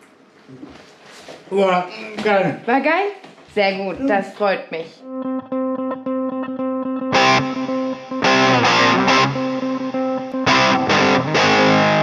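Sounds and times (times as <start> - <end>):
distorted guitar chord hits: 5.0 - 12.0
guitar music held notes: 5.0 - 12.0.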